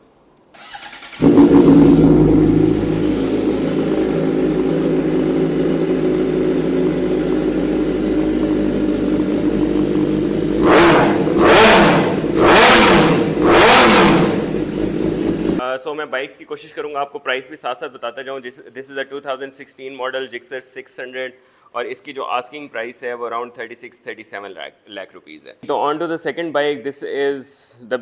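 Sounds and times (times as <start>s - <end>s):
motorcycle engine revving: 0.6s - 15.6s
motorcycle engine idling: 1.1s - 15.6s.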